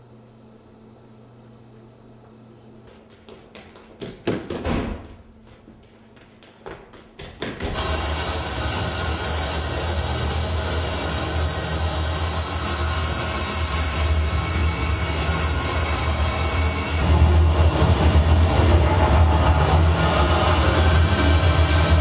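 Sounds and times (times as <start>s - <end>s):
high-pitched whistling tones: 7.8s - 17.1s
low droning rumble: 8.2s - 22.0s.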